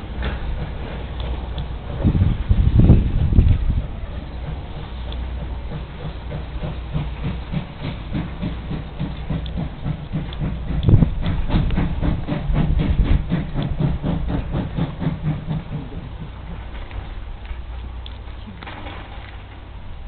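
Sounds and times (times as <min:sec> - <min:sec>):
steam locomotive chuffing: 0:00.0 - 0:20.0.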